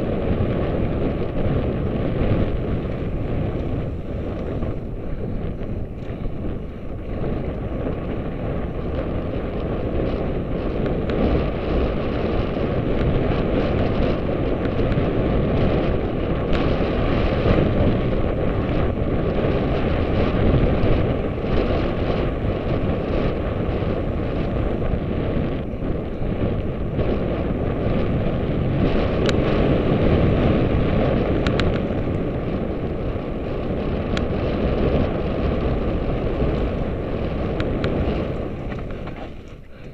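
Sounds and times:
bike tyre rumble on dirt: 0.0s - 39.9s
wind buffeting microphone: 0.0s - 39.9s.

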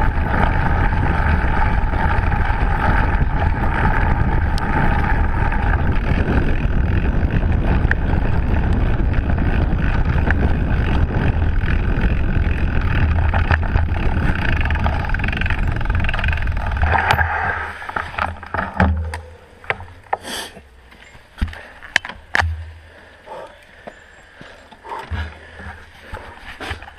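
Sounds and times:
wind rushing over camera: 0.0s - 20.1s
bike clicks and knocks: 0.0s - 26.9s
bike tyre rolling on dirt trail: 0.0s - 26.9s.

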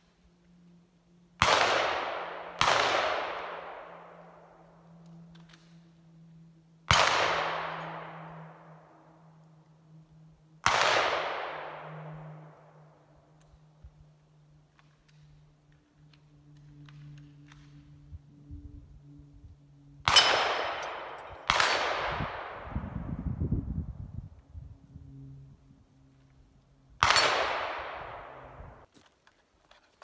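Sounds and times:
gunshots with echo: 1.4s - 4.1s, 6.9s - 8.6s, 10.6s - 12.6s, 20.1s - 22.8s.

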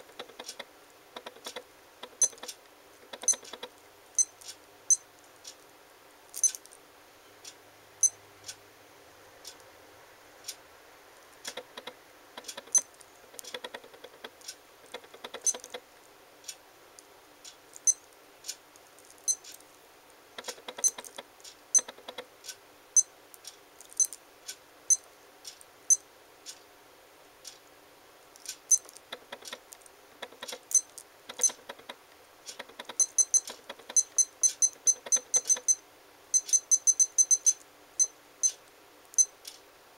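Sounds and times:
short high beeps: 33.0s - 35.8s, 36.4s - 38.6s
watch alarm beeping: 33.0s - 38.6s.

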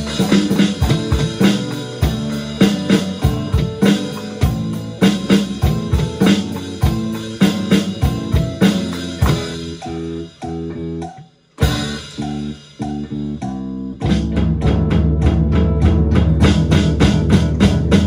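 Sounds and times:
electronic drum hits: 0.0s - 13.1s
electric guitar and bass: 0.0s - 18.0s.

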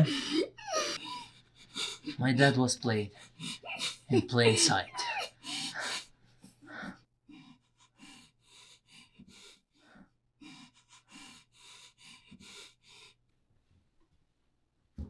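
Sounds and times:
woman sobbing breaths through nose: 0.0s - 2.1s, 3.2s - 13.2s.

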